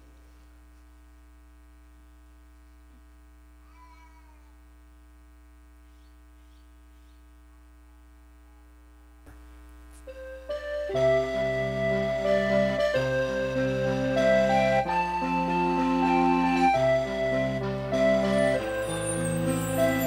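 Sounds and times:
electrical mains hum: 0:00.0 - 0:20.0
music: 0:10.0 - 0:20.0.

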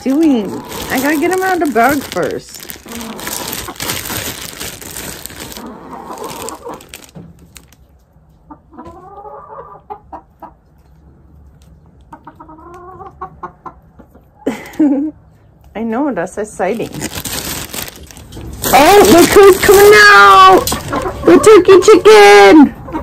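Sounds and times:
hens clucking: 0:00.0 - 0:07.1, 0:08.2 - 0:11.1, 0:11.7 - 0:14.4, 0:18.7 - 0:23.0
plastic bag crinkling: 0:00.0 - 0:07.9, 0:16.7 - 0:21.2.

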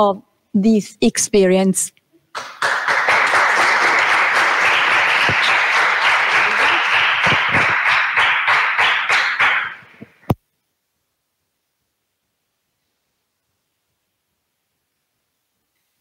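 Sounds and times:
small group applauding: 0:02.3 - 0:10.2.

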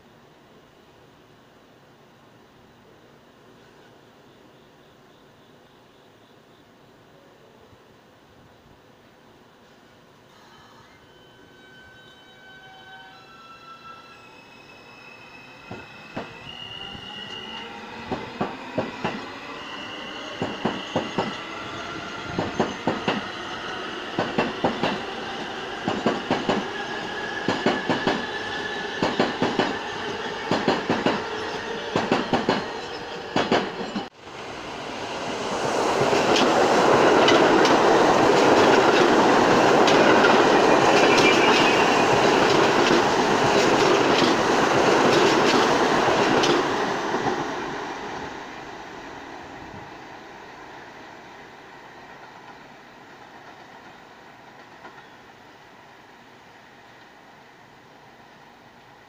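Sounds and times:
wheel squeal: 0:10.4 - 0:22.7
train rushing past: 0:11.1 - 0:55.1.

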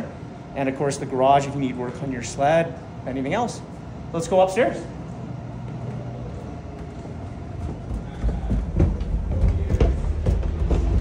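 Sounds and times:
footsteps on wooden stairs: 0:06.7 - 0:11.0.

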